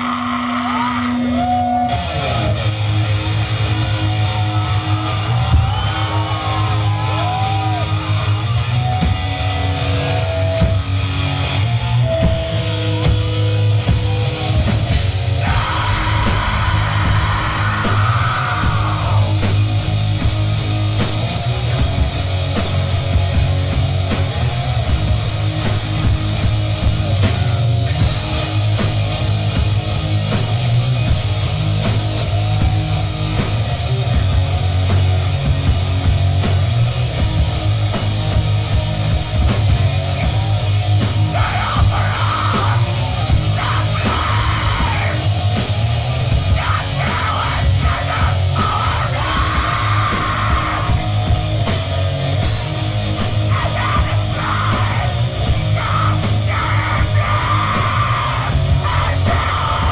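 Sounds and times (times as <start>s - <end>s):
bass guitar: 0.0s - 59.9s
distorted electric guitars: 0.0s - 59.9s
fast steady drumming: 13.9s - 59.9s.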